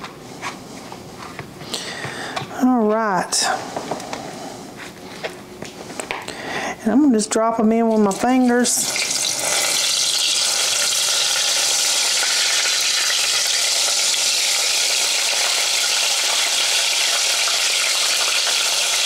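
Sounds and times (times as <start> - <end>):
okra frying in hot oil: 7.9 - 19.0.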